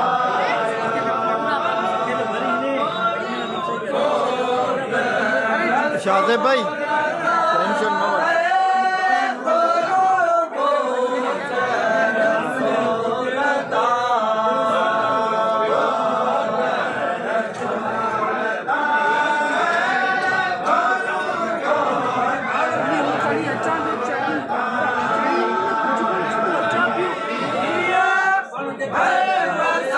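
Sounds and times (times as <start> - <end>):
group singing unaccompanied: 0.0 - 29.9.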